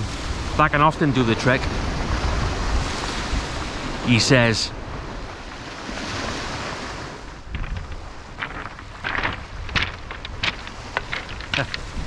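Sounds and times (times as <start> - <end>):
wind buffeting microphone: 0.0 - 4.1, 4.8 - 12.0
waves on shingle beach: 0.0 - 12.0
footsteps crunching on pebbles: 7.5 - 12.0.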